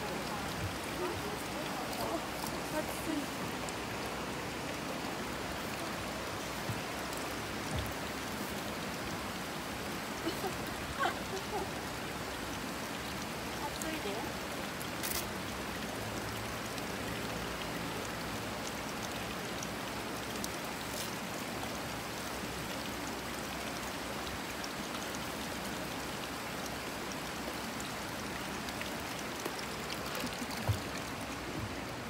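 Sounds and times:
running water rushing: 0.0s - 32.0s.

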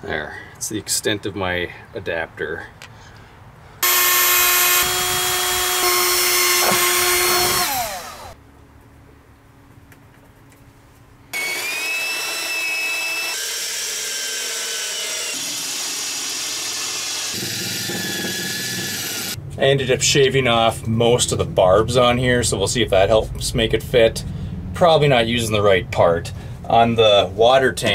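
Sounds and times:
cordless drill driving screws: 3.8s - 8.4s, 11.4s - 19.4s
electric drill whining: 3.8s - 8.4s, 11.4s - 19.4s.

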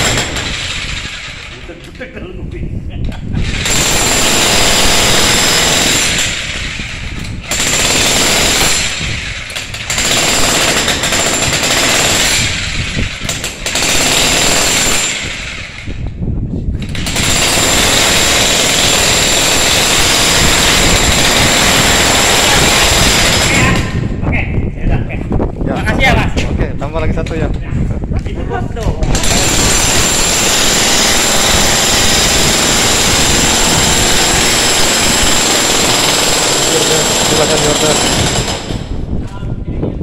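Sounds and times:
demolition hammer pounding concrete: 0.0s - 2.2s, 3.2s - 16.2s, 16.8s - 24.2s, 28.8s - 39.2s.

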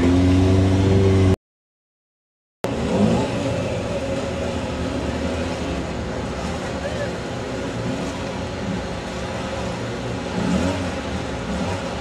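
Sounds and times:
motorcycle engine revving: 0.0s - 1.4s, 10.2s - 12.0s.

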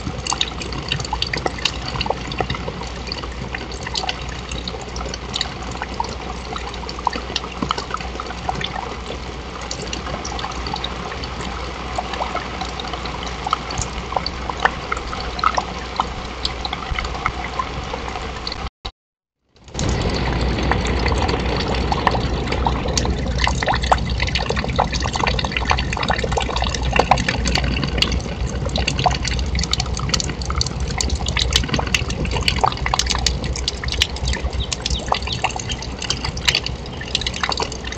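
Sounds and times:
sharp drips and taps: 0.0s - 18.7s, 19.6s - 37.9s
steady rain falling: 19.7s - 37.9s.

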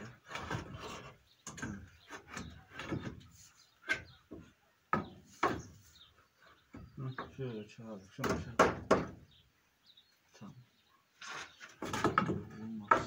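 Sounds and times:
wood knocking and scraping: 0.0s - 7.6s, 11.2s - 13.0s.

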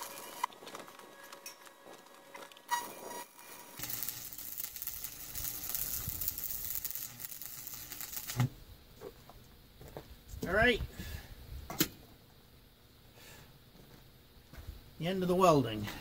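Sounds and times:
welding arc crackling and sizzling: 0.0s - 10.8s.

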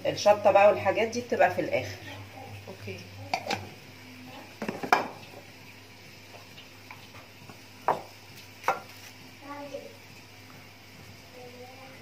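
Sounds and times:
metal cookware clinking: 3.3s - 3.7s.

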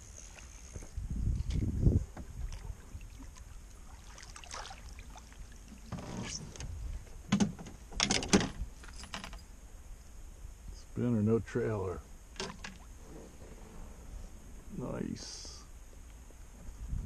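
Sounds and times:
fish splashing in water: 2.5s - 5.9s
low rumble: 13.0s - 15.9s.

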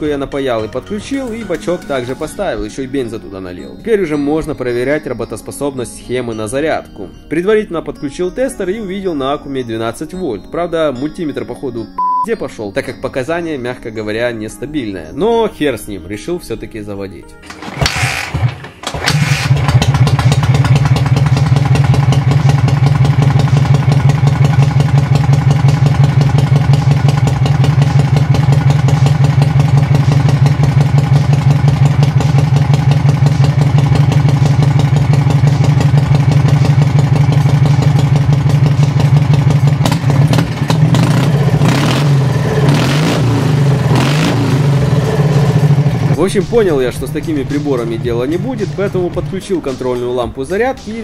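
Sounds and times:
motorcycle throttle blips: 17.5s - 46.2s
motorcycle engine idling: 17.5s - 49.1s.

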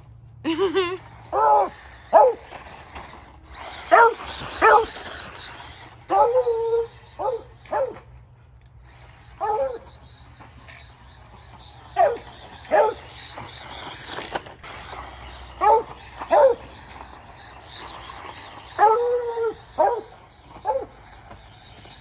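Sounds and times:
dog barking: 3.9s - 4.9s, 19.8s - 20.9s.

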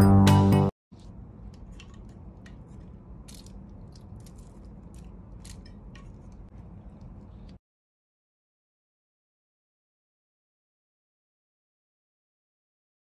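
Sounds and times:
music: 0.0s - 0.7s.

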